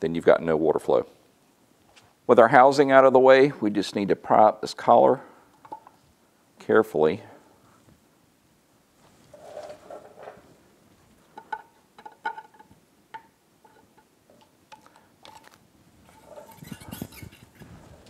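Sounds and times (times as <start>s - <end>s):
rustling handling noise: 8.9s - 12.8s.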